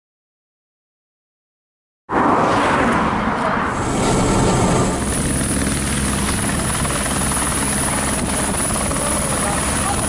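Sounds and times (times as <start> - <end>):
helicopter hovering: 3.7 - 10.0.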